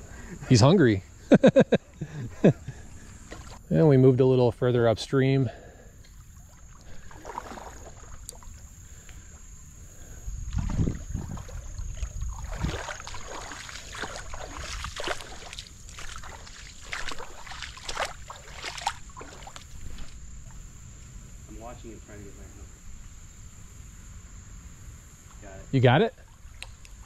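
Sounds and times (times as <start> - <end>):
water sloshing and splashing: 3.0 - 3.7, 6.1 - 9.5, 10.5 - 20.6.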